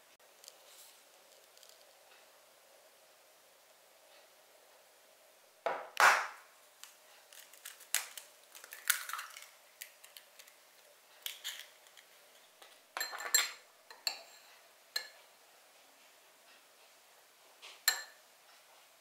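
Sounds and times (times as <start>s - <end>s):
metal spoon clinking on glass bowl: 13.0s - 15.2s, 17.9s - 18.2s.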